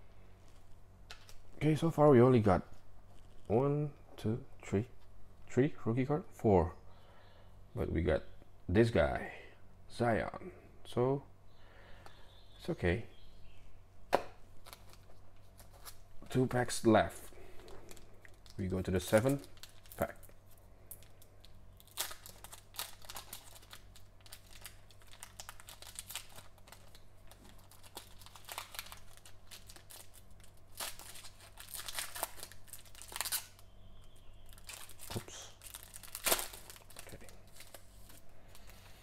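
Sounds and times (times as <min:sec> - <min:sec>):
foil wrapper tearing and crinkling: 0:17.6 - 0:33.7, 0:34.4 - 0:38.8.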